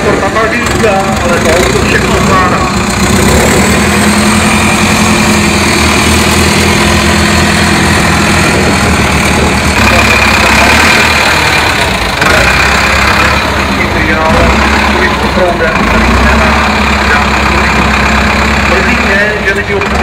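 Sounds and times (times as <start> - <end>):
diesel truck engine at low revs: 0.0 - 20.0.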